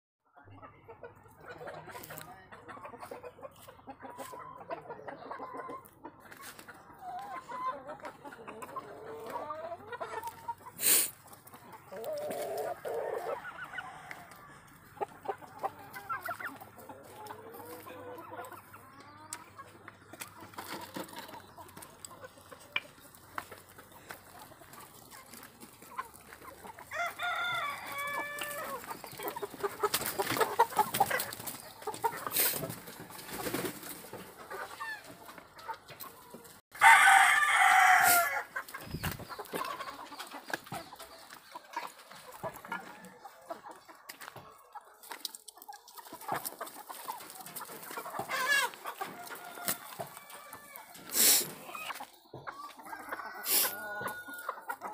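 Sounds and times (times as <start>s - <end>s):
chickens clucking: 0.3s - 54.9s
rooster crowing: 26.9s - 28.8s, 36.8s - 38.5s, 52.8s - 54.6s.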